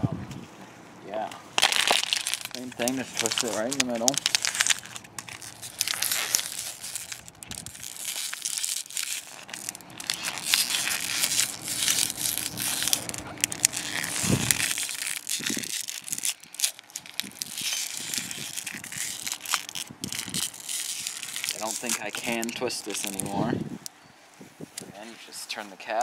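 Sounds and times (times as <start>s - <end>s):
plastic bottle crinkling: 1.6s - 23.9s.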